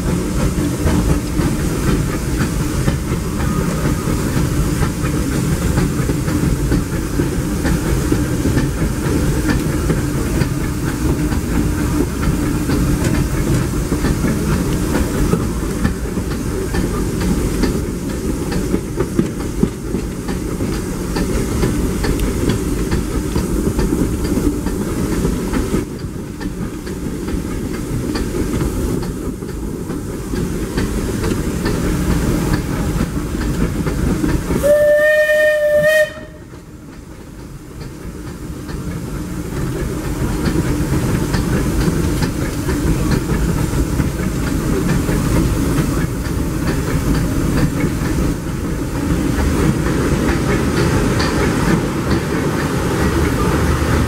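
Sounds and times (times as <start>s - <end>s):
steam locomotive hiss and rumble: 0.0s - 54.0s
steam whistle blast: 34.6s - 36.5s.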